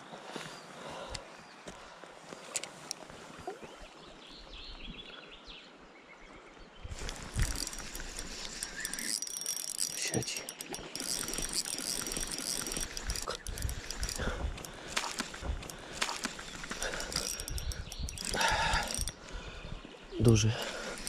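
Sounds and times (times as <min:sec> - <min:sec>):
river water hissing: 0:06.9 - 0:21.0
scattered clicks: 0:07.0 - 0:19.3
fishing reel ticking: 0:07.0 - 0:19.4, 0:20.5 - 0:21.0.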